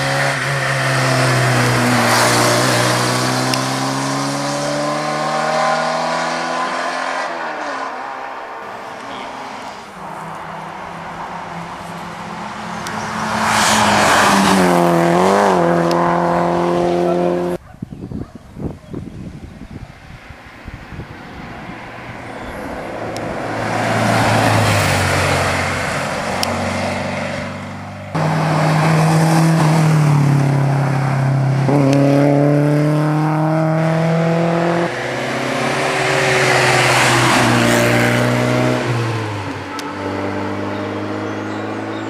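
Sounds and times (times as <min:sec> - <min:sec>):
rally car engines accelerating: 0:00.0 - 0:17.6, 0:28.1 - 0:42.0.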